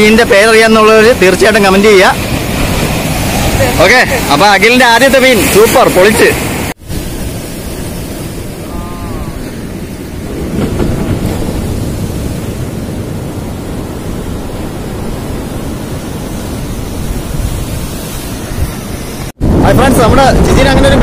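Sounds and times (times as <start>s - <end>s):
waves breaking against rocks: 0.2s - 21.0s
wind rumbling on microphone: 6.2s - 21.0s.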